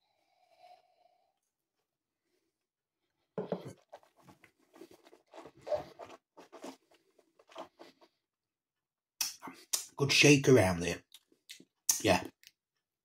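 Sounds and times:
breaths: 0.0s - 1.5s
mouth clicks: 9.2s - 10.0s.

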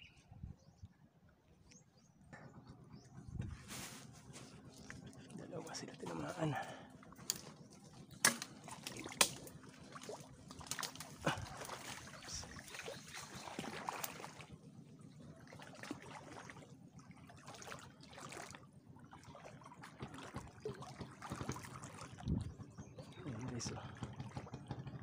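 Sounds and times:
shallow water trickling and sloshing: 0.1s - 25.0s.

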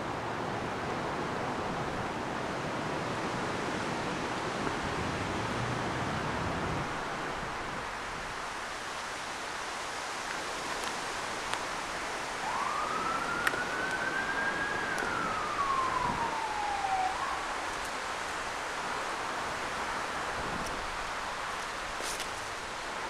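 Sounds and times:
outdoor hiss: 6.9s - 23.0s
distant siren wailing: 11.7s - 18.8s.

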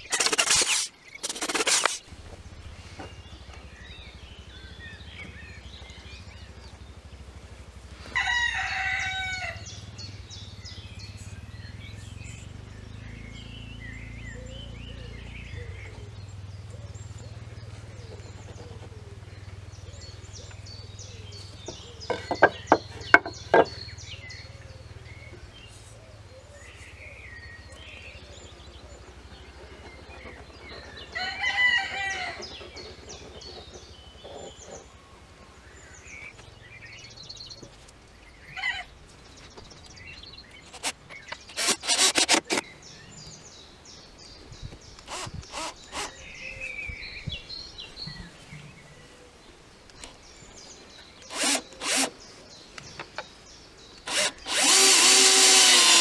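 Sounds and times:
sharp clicks: 0.0s - 2.1s, 40.6s - 42.7s
small birds chirping: 0.0s - 56.0s
rooster crowing: 8.1s - 9.6s, 31.1s - 32.5s.

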